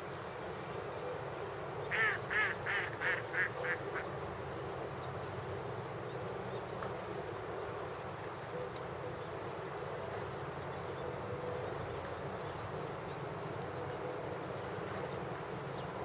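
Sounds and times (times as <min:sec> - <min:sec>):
steady low background noise: 0:00.0 - 0:16.0
bird harsh calls: 0:01.9 - 0:04.1.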